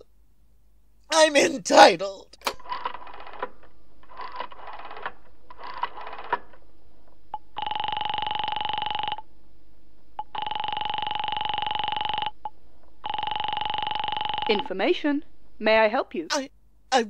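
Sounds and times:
telephone ringing tone: 7.4s - 9.3s, 10.2s - 14.7s.

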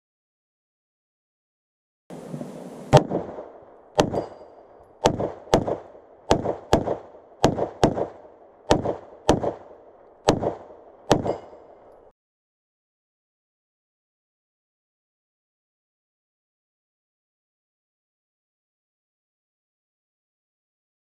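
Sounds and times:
pistol shots with echo: 2.9s - 12.1s.

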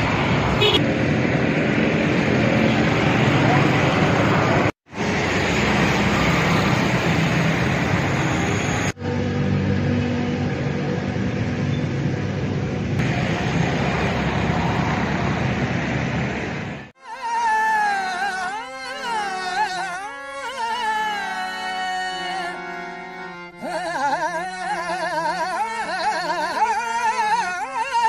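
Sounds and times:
street traffic: 0.0s - 17.0s, 17.6s - 28.0s
music: 17.0s - 28.0s
person singing ornamented melody: 17.0s - 28.0s.

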